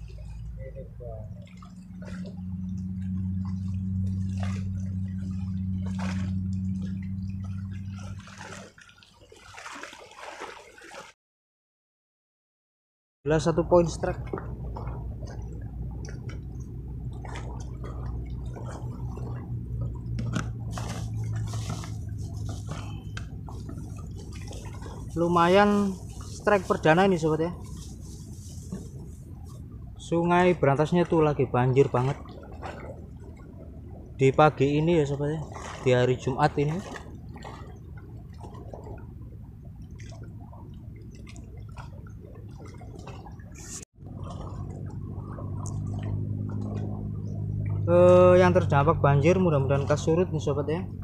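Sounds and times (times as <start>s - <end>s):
floodwater rushing: 0.0s - 11.2s, 13.4s - 51.0s
flooded river rushing: 17.2s - 33.0s
faint rustles and clicks: 19.9s - 26.9s, 27.5s - 29.9s.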